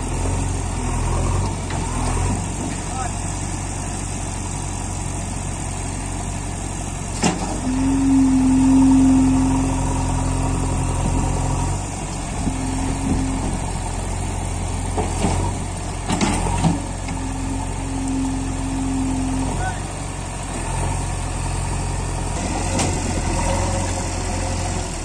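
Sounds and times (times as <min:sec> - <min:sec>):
diesel engine under load: 0:00.0 - 0:25.0
hydraulic whine: 0:06.8 - 0:25.0.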